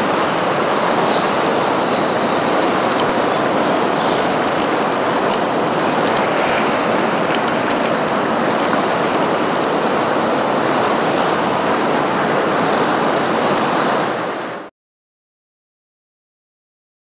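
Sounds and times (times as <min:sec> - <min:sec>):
fish splashing: 0:00.0 - 0:12.8
river current running: 0:00.0 - 0:14.7.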